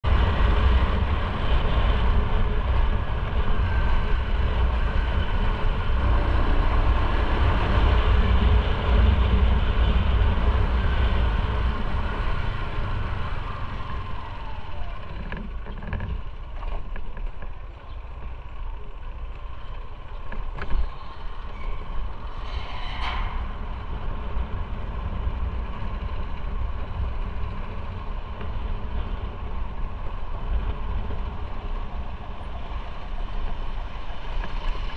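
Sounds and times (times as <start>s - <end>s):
motorcycle engine rumble: 0.0s - 34.9s
road and wind noise: 0.0s - 34.9s.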